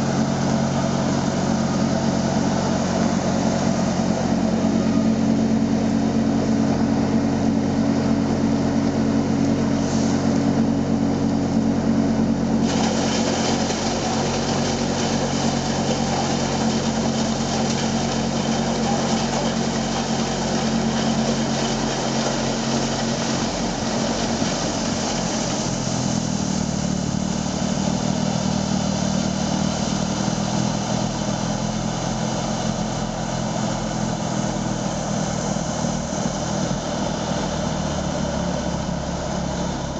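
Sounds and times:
snow blower engine running hard: 0.0s - 39.9s
wheel loader engine: 0.0s - 39.9s
snow blower throwing snow hiss: 9.6s - 10.6s, 12.5s - 39.9s.

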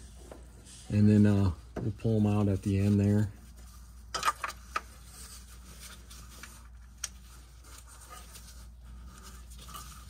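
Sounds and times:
hand tool scrapes and rustles: 2.0s - 10.0s.

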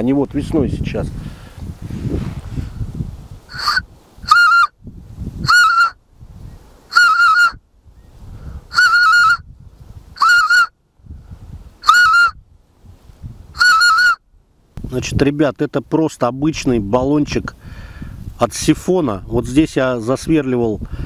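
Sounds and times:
goose call whistling honk: 3.5s - 4.8s, 5.4s - 6.0s, 6.9s - 7.6s, 8.7s - 9.4s, 10.2s - 10.8s, 11.8s - 12.4s, 13.6s - 14.2s.

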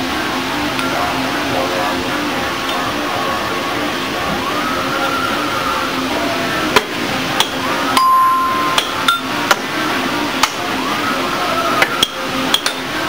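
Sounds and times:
held beep: 8.0s - 8.8s
repeating electronic tones: 8.0s - 9.2s.

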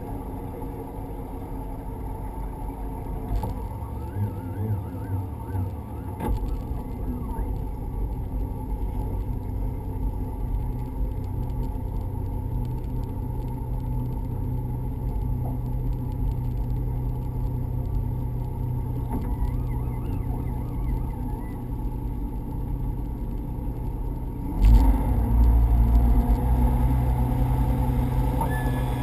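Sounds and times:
outboard motor humming: 26.4s - 29.0s.

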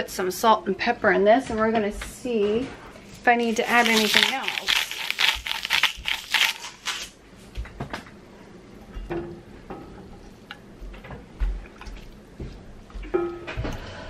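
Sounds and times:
salt shaker rattling: 3.4s - 7.1s.

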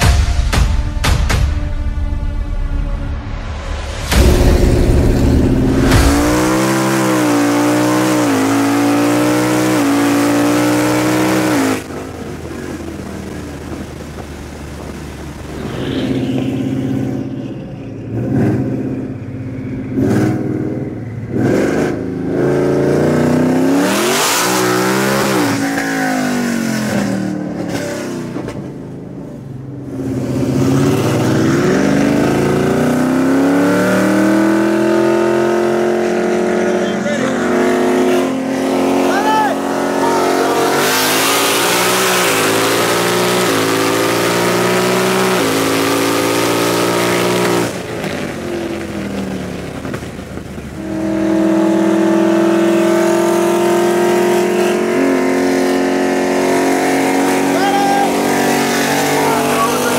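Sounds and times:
car engine revving: 2.0s - 59.9s.

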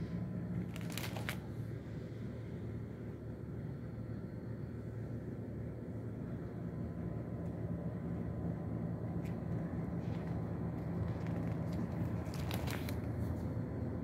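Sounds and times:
steady low hum: 0.0s - 14.0s
page crinkling: 0.6s - 1.5s, 10.0s - 13.2s.

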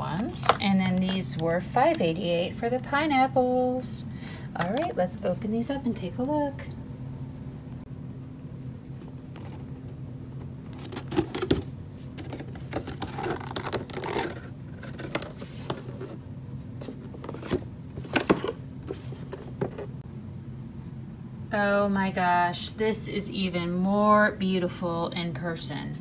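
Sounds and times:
steady low hum: 0.0s - 26.0s
cardboard packaging rustling: 10.7s - 16.2s, 16.8s - 20.0s.

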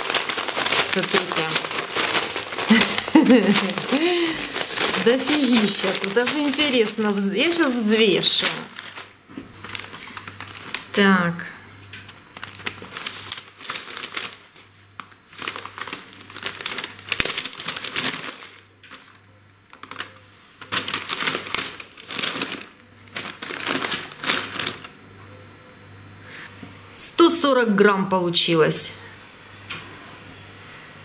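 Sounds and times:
paper bag crinkling and rustling: 0.0s - 11.1s, 12.0s - 24.9s.

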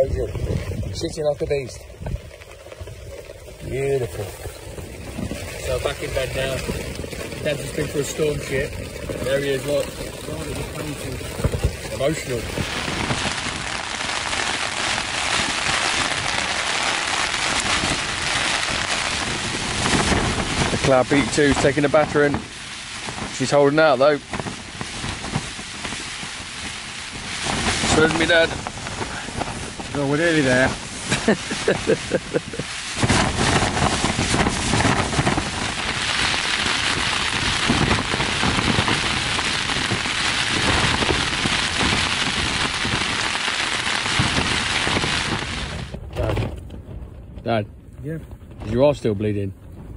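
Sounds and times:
wind flapping tent fabric: 0.0s - 49.9s.

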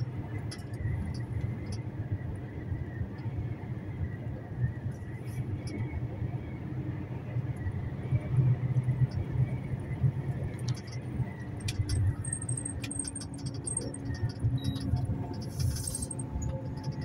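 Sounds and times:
truck engine rumbling: 0.0s - 17.0s
light clicks and rattles: 10.5s - 17.0s.

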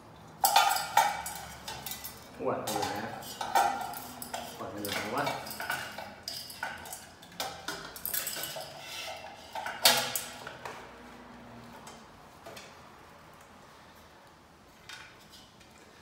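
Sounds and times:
small metal parts clinking: 0.2s - 10.5s.

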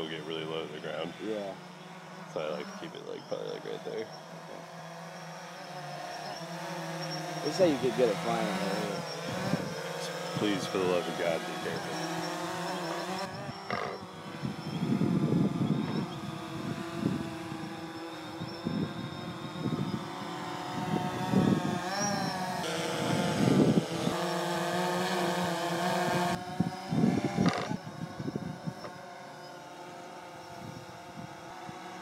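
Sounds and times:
drone propellers buzzing: 0.0s - 32.0s.

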